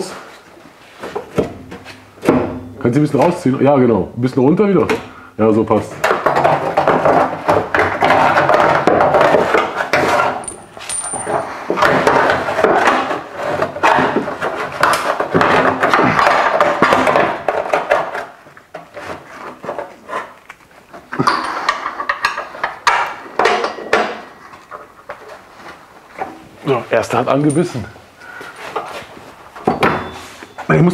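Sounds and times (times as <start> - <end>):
metal scraping and clinking: 8.0 - 15.1.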